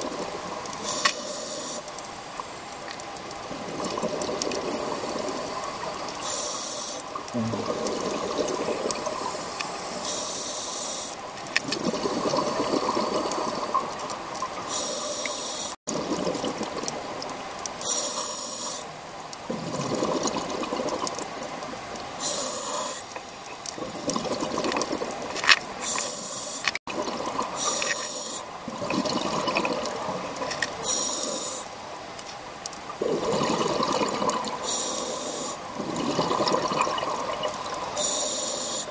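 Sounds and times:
regulator inhalation hiss: 0:00.8 - 0:01.9, 0:05.6 - 0:07.1, 0:09.4 - 0:11.2, 0:14.7 - 0:15.8, 0:17.8 - 0:18.9, 0:22.2 - 0:23.1, 0:25.8 - 0:26.8, 0:27.6 - 0:28.5, 0:30.8 - 0:31.7, 0:34.6 - 0:35.6, 0:37.9 - 0:38.9
exhaled bubbles burbling: 0:03.4 - 0:06.3, 0:07.1 - 0:09.7, 0:11.6 - 0:14.7, 0:15.9 - 0:17.4, 0:19.4 - 0:21.8, 0:23.6 - 0:25.8, 0:26.9 - 0:30.6, 0:32.9 - 0:34.8, 0:35.6 - 0:38.2.

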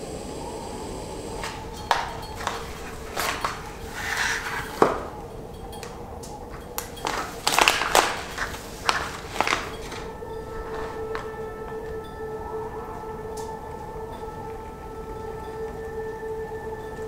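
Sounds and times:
faint steady hum: 0:00.0 - 0:17.0
foil pouch crackling and rustling: 0:01.4 - 0:11.5.

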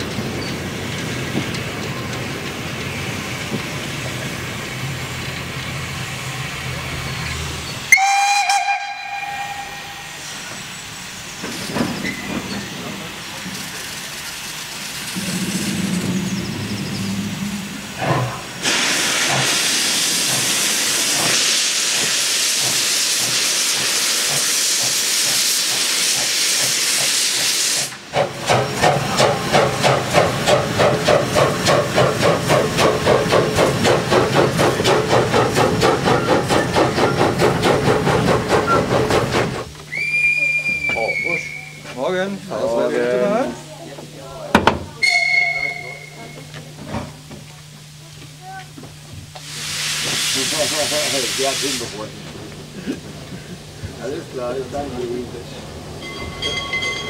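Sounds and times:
steam locomotive exhaust beats: 0:00.0 - 0:42.5, 0:44.8 - 0:57.0
steam hissing: 0:00.0 - 0:44.2, 0:44.8 - 0:57.0
steam whistle blast: 0:07.9 - 0:10.2, 0:39.9 - 0:41.9, 0:45.0 - 0:46.5.

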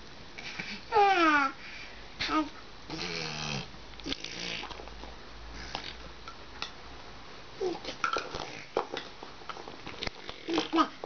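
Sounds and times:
infant vocalizing: 0:10.4 - 0:11.0.

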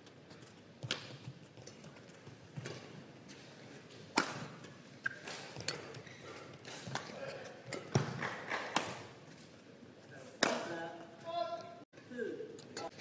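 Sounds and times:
rackets hitting shuttlecock: 0:04.1 - 0:05.9, 0:10.4 - 0:10.7.

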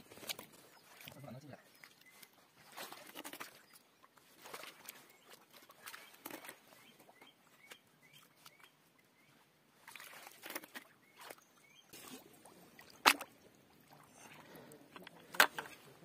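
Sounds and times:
hands splashing in shallow water: 0:09.8 - 0:14.6.

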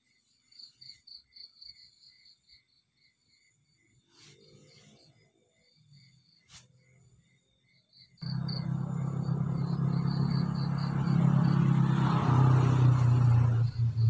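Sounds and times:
crickets chirping: 0:00.0 - 0:14.0
engine running with low hum: 0:08.2 - 0:14.0.

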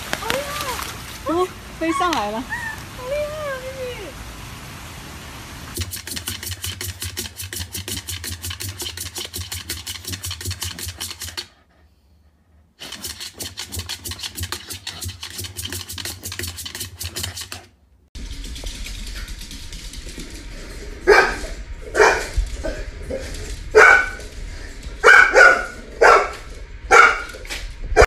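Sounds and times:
dog paws scrabbling on floor: 0:18.2 - 0:26.5.

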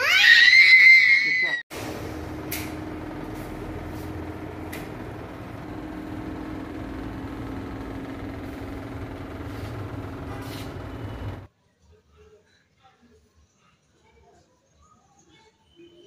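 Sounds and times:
machine hum: 0:01.7 - 0:11.5.

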